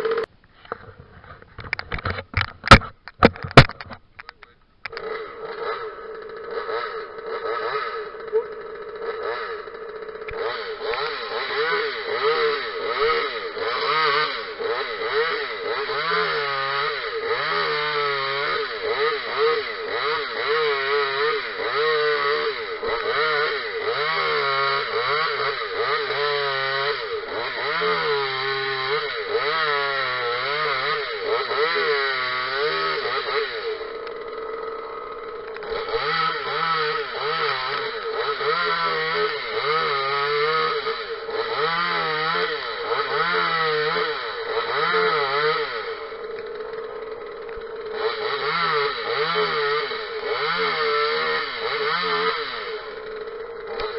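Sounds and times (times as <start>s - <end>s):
chainsaw revving: 0.0s - 0.3s, 4.9s - 53.9s.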